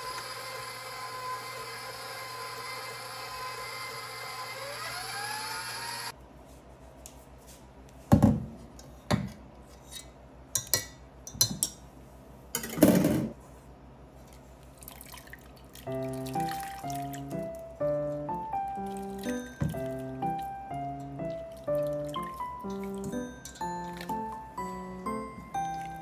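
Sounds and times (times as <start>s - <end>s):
stand mixer running: 0.0s - 6.1s
liquid dripping and splashing: 14.2s - 17.7s, 18.7s - 24.2s
music: 15.9s - 26.0s.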